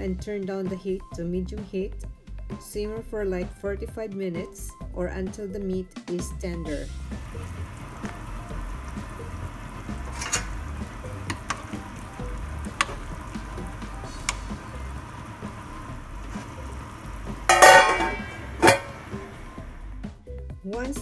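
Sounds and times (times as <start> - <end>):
broth boiling in a pot: 6.5 - 20.2
ladle clicking against pot: 11.2 - 11.8, 12.6 - 13.2, 17.5 - 19.2
metal lid clattering on pot: 17.4 - 19.2.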